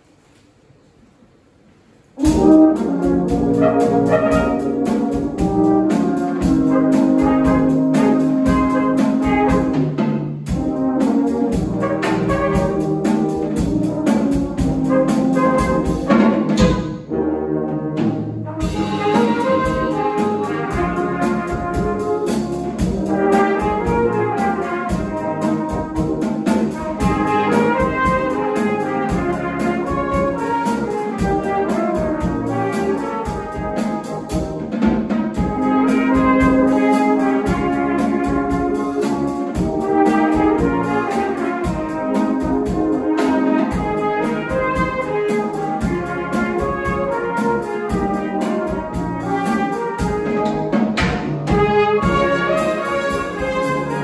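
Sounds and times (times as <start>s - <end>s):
brass band playing: 2.1s - 54.0s
drum kit: 2.1s - 54.0s.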